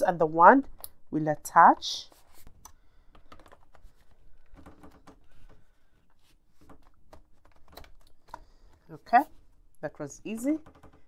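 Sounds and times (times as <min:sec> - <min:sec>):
plastic handling noise: 0:01.7 - 0:09.6.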